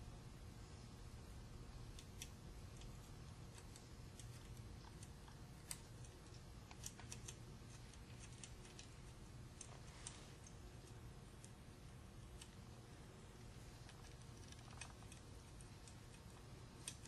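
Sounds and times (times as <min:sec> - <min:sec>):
low room hum: 0:00.0 - 0:17.0
small clicks and taps on metal: 0:13.8 - 0:17.0.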